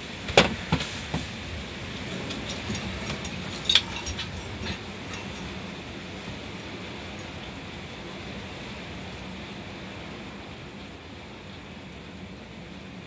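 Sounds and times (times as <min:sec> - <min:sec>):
car wash equipment running: 0:00.0 - 0:13.0
taps and knocks on car body: 0:00.3 - 0:01.3.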